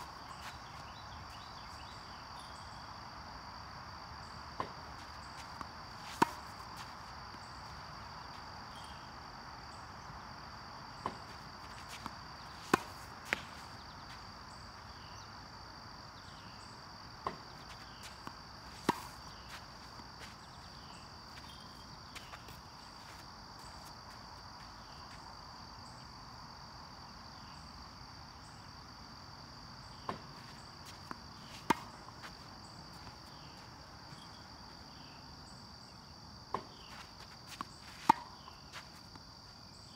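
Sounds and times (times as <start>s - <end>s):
crickets chirping: 0.0s - 39.9s
tennis balls bouncing on hard court: 4.5s - 8.9s, 11.0s - 14.3s, 17.2s - 24.2s, 30.0s - 34.4s, 36.5s - 39.2s
racket striking tennis ball: 4.6s - 7.4s, 11.0s - 14.2s, 17.2s - 20.0s, 31.1s - 32.4s, 36.5s - 38.5s.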